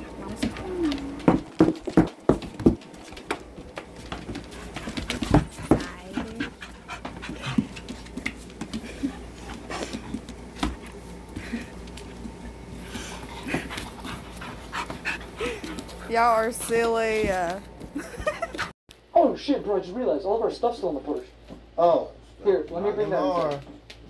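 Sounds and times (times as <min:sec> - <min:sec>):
knocks and scuffles on hard floor: 0:00.4 - 0:11.5
dogs panting: 0:02.2 - 0:18.7.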